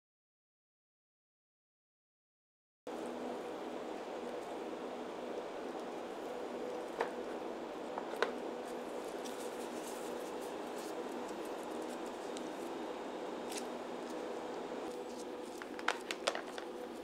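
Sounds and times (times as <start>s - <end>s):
low room hum: 2.9s - 17.0s
gloved hands rubbing together: 8.6s - 12.8s.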